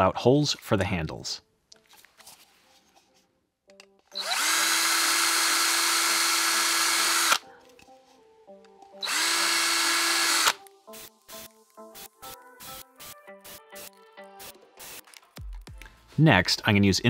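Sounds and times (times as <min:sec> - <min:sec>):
cordless drill boring plastic: 0:04.2 - 0:07.4, 0:09.0 - 0:10.6.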